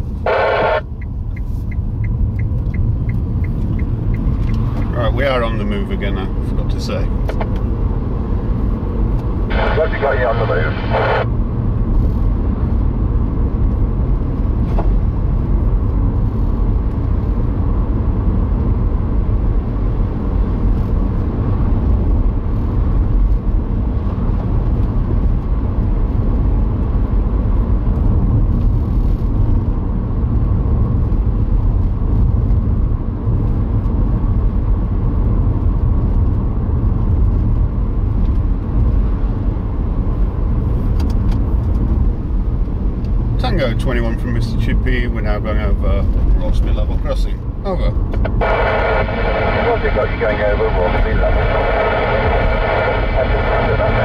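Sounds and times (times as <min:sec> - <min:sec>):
car road noise rumble: 0:00.0 - 0:54.0.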